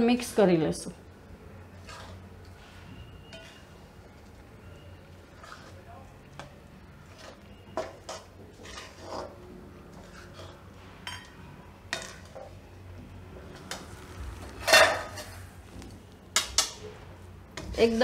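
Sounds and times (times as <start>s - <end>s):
metal spatula scraping pan: 1.7s - 3.9s, 5.2s - 5.8s, 7.0s - 12.5s, 14.5s - 15.5s.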